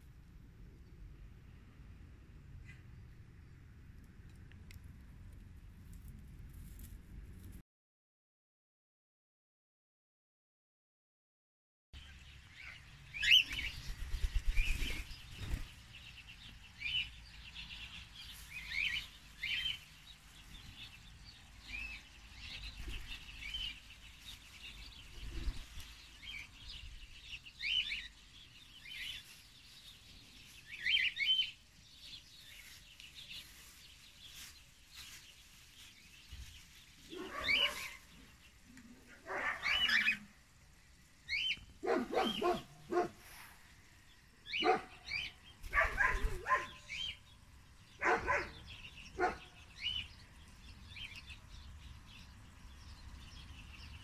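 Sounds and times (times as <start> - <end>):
cockatiels chirping: 12.6 - 15.6, 18.2 - 19.8, 30.6 - 35.2, 37.0 - 38.2, 39.4 - 40.3
louder lower bird calls: 37.1 - 38.1, 39.0 - 40.4.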